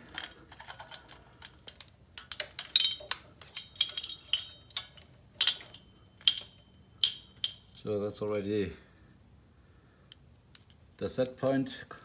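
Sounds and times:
small metal parts clicking: 0.0 - 8.4.

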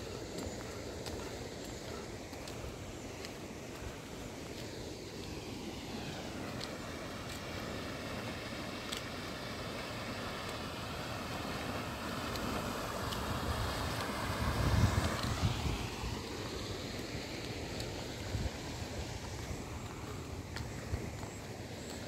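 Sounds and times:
wind rushing over microphone: 13.3 - 16.5
low wind buffeting: 13.3 - 21.9.

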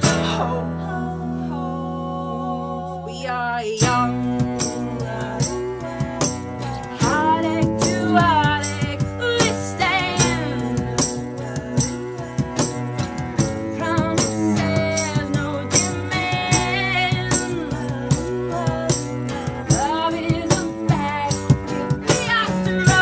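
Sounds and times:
live band music: 0.0 - 0.8, 3.8 - 23.0
bowed cello: 0.0 - 23.0
hand percussion beat: 3.8 - 23.0.

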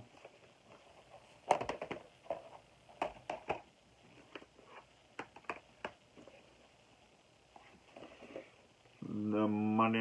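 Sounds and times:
plastic cases clacking together: 1.4 - 3.7.

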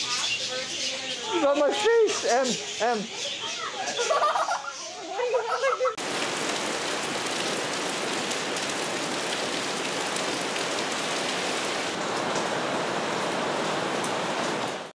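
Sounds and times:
heavy rain falling: 5.2 - 14.9.

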